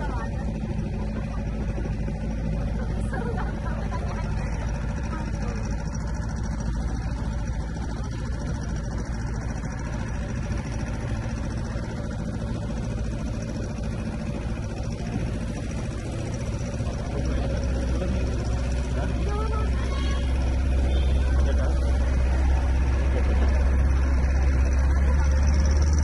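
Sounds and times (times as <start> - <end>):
boat engine running: 0.0 - 26.0.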